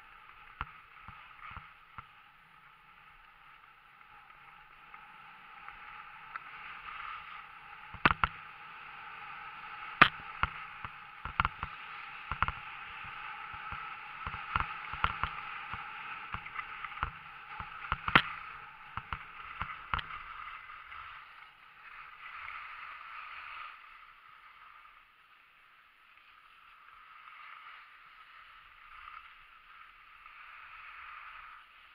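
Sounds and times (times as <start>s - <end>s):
skis scraping over snow: 0.0s - 31.9s
sharp clicks and knocks: 7.9s - 8.4s, 10.0s - 12.6s, 13.5s - 20.2s.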